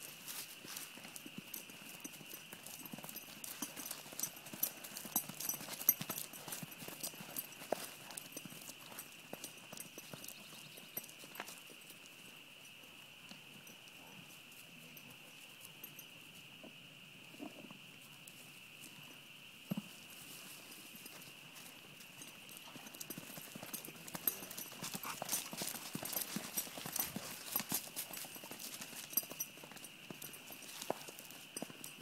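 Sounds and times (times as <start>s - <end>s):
horse hoofbeats on turf: 0.0s - 11.7s, 22.0s - 32.0s.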